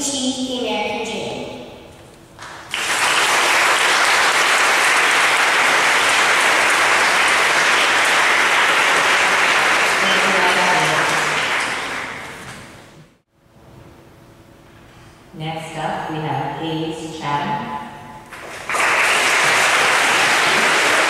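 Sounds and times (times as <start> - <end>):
woman speaking: 0.0 - 1.6, 10.0 - 11.2, 15.4 - 17.8
audience applauding: 2.4 - 12.8, 18.3 - 21.0.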